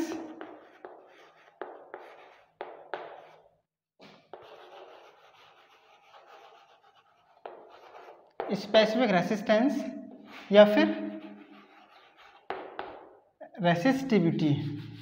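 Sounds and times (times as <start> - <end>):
chalk tapping and scratching on chalkboard: 0.0 - 9.0, 10.2 - 13.2.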